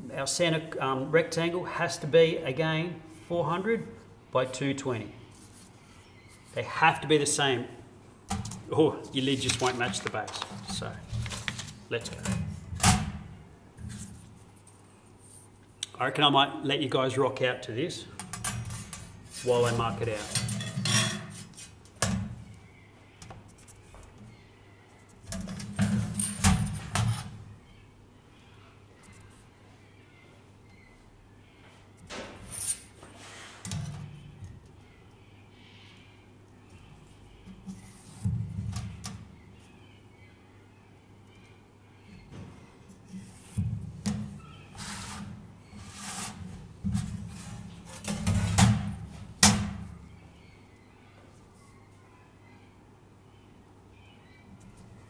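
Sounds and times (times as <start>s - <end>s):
metal clanks and knocks: 20.2s - 21.4s
metal scraping slides: 44.7s - 48.5s.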